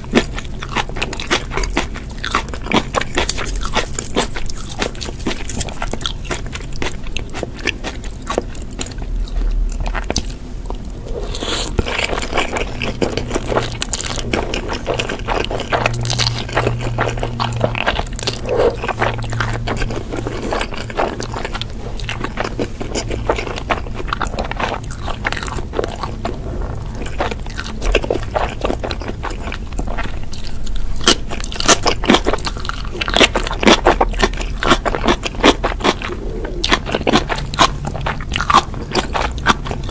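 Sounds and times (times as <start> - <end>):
person chewing and biting food: 0.0 - 39.9.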